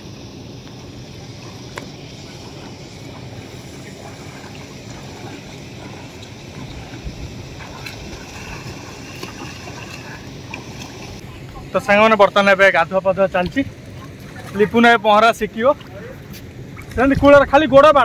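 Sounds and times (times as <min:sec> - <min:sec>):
wind on microphone: 0:00.0 - 0:11.8, 0:15.8 - 0:18.0
faint swimming splashes: 0:00.0 - 0:17.5.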